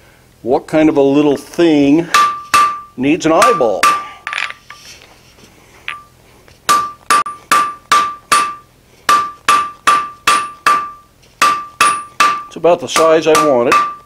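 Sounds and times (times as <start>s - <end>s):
hammer striking metal on anvil: 2.1s - 4.5s, 5.9s - 6.1s, 6.7s - 14.0s.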